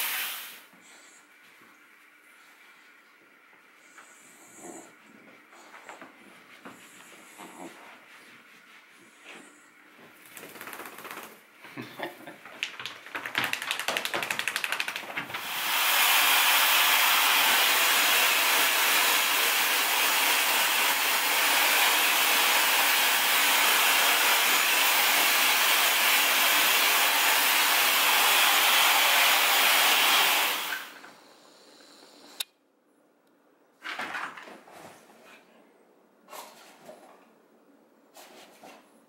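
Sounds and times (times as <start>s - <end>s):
rapid rustling: 12.4s - 15.4s
hair dryer running: 14.0s - 31.1s.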